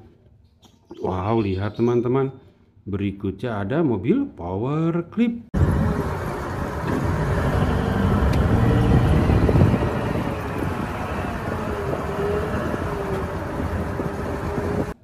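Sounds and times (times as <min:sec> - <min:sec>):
diesel engine rumbling: 0:05.6 - 0:15.0.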